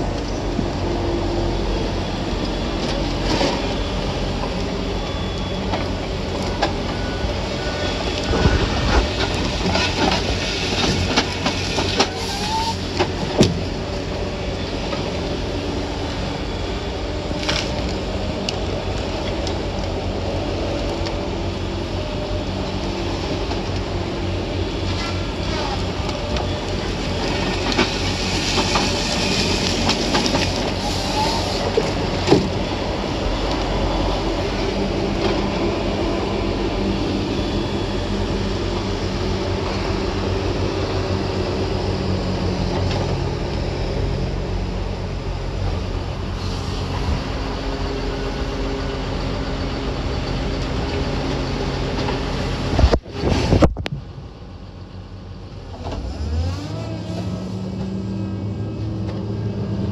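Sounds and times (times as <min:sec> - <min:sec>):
truck engine running: 0:00.0 - 0:59.9
wind rushing over phone: 0:08.2 - 0:09.7, 0:52.6 - 0:54.3.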